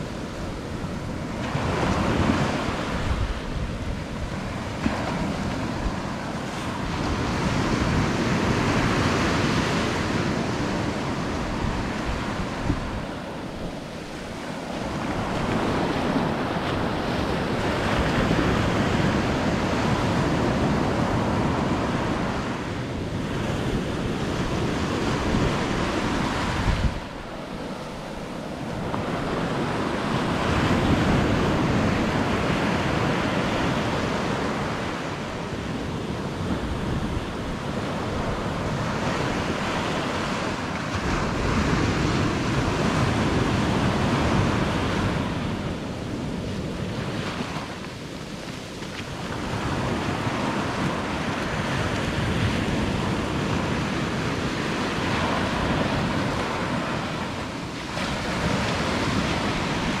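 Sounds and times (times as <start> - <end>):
ocean surf breaking: 0.0 - 60.0
wind buffeting microphone: 0.0 - 60.0.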